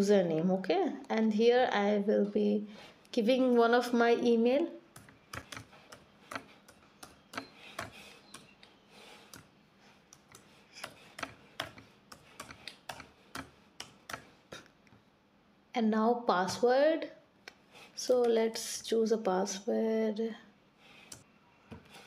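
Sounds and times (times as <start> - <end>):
computer keyboard typing: 4.9 - 8.6, 10.2 - 14.3.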